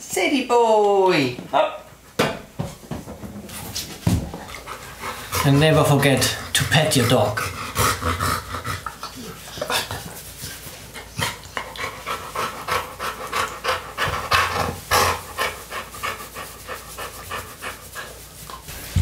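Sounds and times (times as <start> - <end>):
dog panting: 4.0 - 19.0.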